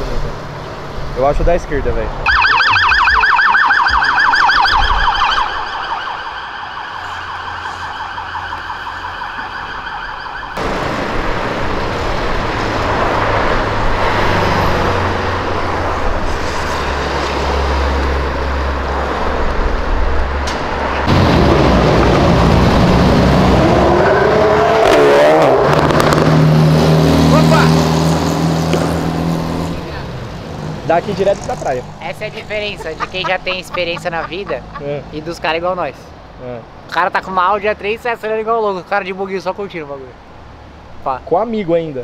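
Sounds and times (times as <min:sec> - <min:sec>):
street traffic with cars passing: 0:00.0 - 0:42.0
ambulance siren warbling: 0:02.2 - 0:10.6
engine revving: 0:10.6 - 0:33.2.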